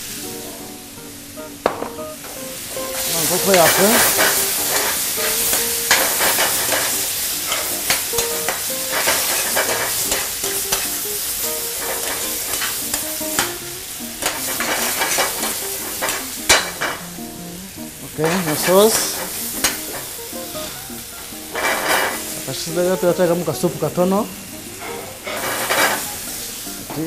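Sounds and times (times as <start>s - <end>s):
chicken sizzling in frying pan: 0.0s - 27.0s
metal spatula scraping pan: 3.0s - 10.8s, 11.7s - 13.5s, 14.2s - 17.0s, 21.5s - 22.2s, 24.8s - 26.1s.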